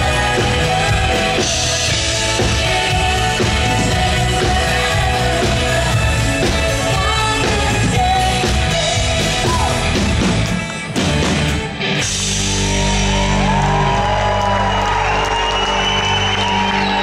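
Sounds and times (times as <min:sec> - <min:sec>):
woman singing lead: 0:00.0 - 0:10.2
live synth-pop band: 0:00.0 - 0:17.0.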